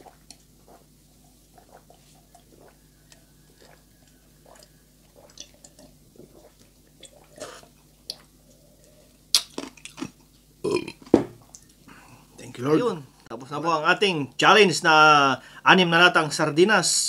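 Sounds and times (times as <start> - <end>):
gulping and swallowing: 0.0 - 11.6.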